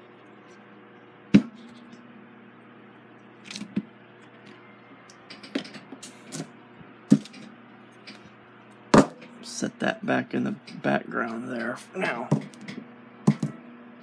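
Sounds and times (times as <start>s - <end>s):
faint hum: 0.0s - 14.0s
fan parts knocking on workbench: 7.1s - 7.6s, 8.9s - 9.3s, 12.3s - 13.6s.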